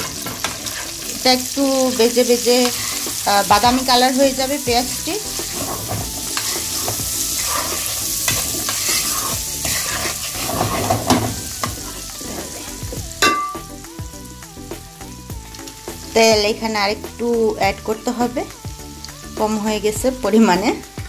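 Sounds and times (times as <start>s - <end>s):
wooden spatula scraping a wok: 0.0s - 1.2s, 2.5s - 3.9s, 4.8s - 13.1s
onions and prawns sizzling in oil: 0.0s - 21.0s.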